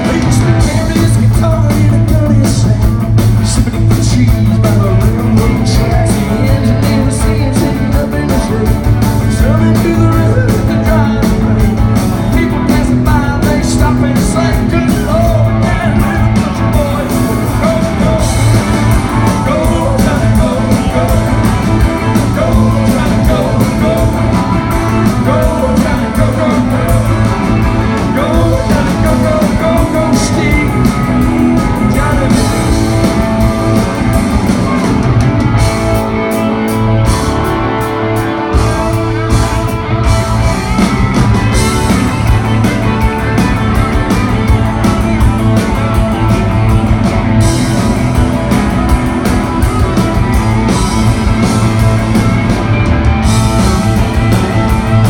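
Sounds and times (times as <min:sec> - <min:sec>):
man singing: 0:00.0 - 0:33.5
rock and roll band playing: 0:00.0 - 0:55.0.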